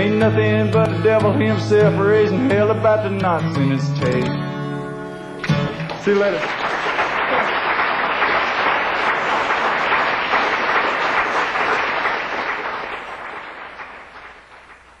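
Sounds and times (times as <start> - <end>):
audience applauding and cheering: 5.5 - 15.0.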